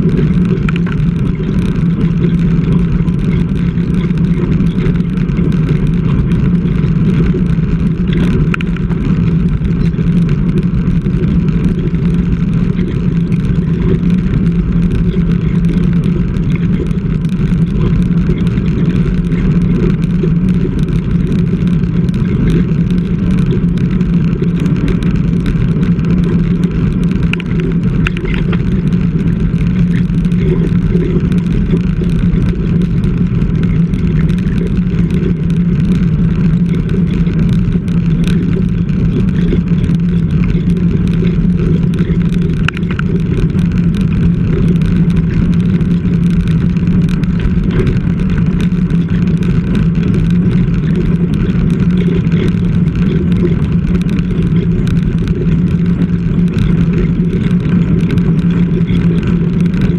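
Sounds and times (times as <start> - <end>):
bicycle road noise: 0.0 - 59.9.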